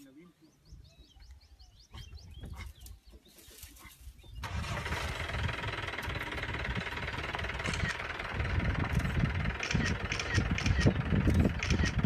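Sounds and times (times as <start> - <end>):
vehicle engine starting and idling: 4.4 - 12.0.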